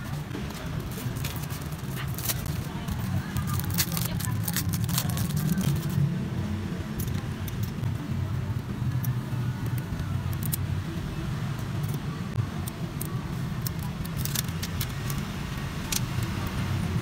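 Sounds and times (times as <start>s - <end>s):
protective film peeling: 0.8s - 6.0s, 13.6s - 16.4s.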